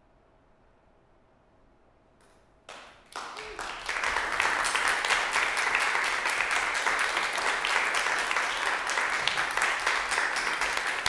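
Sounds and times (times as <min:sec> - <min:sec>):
small audience applauding: 0:02.7 - 0:11.0.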